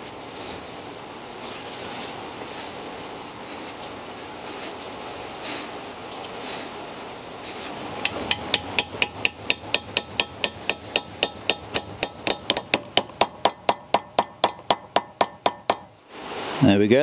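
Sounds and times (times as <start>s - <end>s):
hammer tapping metal socket: 8.0s - 15.9s.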